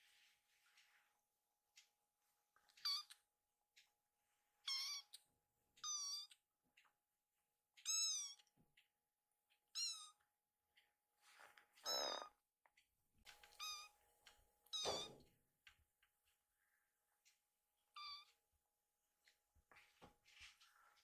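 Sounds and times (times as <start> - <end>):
kitten mewing: 11.8 - 12.4.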